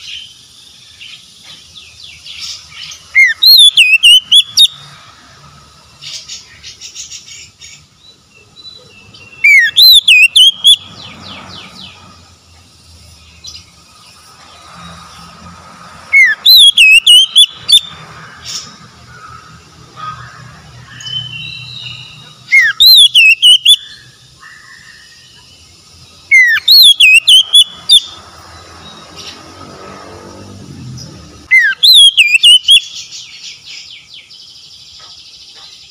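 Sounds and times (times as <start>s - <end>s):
soft bird chirps and trills: 0.0s - 35.9s
bird song whistled phrases: 2.4s - 4.8s, 8.4s - 10.9s, 16.1s - 18.0s, 20.9s - 24.1s, 26.3s - 28.2s, 31.5s - 34.4s.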